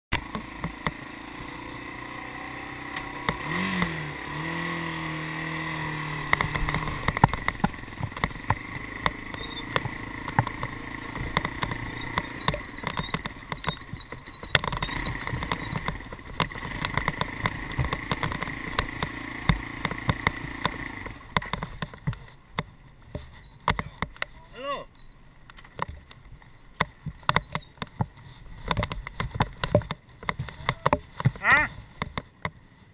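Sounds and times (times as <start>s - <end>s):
dirt bike engine revving: 0.1s - 22.0s
bike knocks and rattles: 6.1s - 32.6s.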